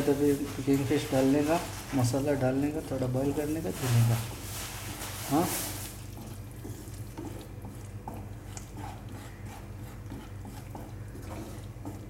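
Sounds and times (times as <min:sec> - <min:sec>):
wet squelches and clicks: 0:06.1 - 0:12.0.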